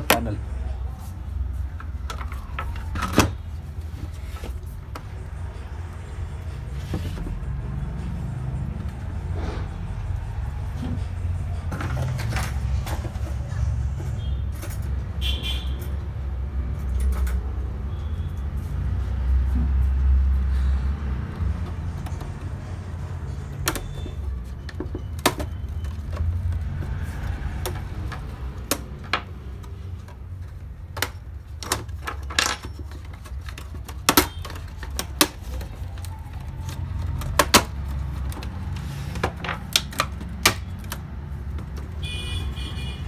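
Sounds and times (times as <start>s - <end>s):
plastic clips clicking and snapping: 39.3s - 41.9s.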